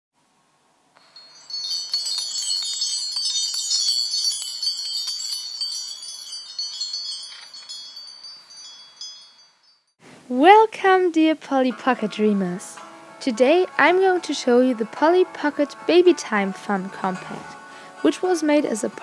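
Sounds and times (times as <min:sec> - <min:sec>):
high tinkling chimes: 0:01.0 - 0:10.0.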